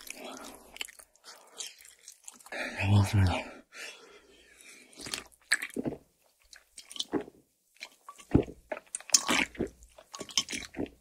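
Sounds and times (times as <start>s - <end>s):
gulping and swallowing: 4.9s - 11.0s.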